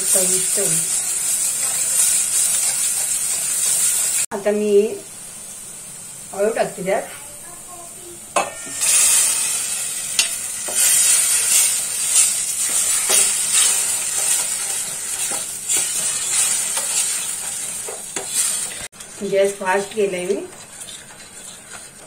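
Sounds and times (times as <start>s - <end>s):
leaves sizzling in hot oil: 0.0s - 22.0s
ladle stirring and knocking pot: 12.2s - 22.0s.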